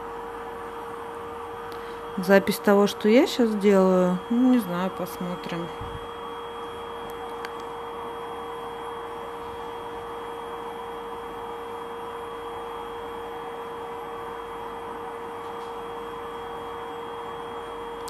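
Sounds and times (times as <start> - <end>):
high-pitched whine: 0.0 - 13.6
electrical hum: 0.0 - 18.0.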